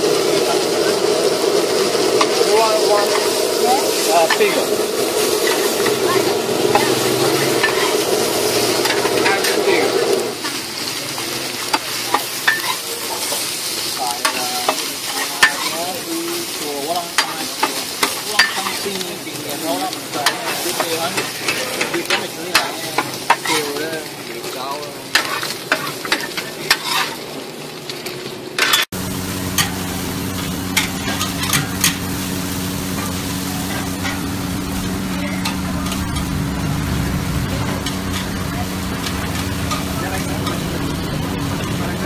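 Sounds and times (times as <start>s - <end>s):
food sizzling on griddle: 0.0s - 42.0s
metal spatula scraping iron: 6.6s - 9.7s, 26.7s - 27.2s.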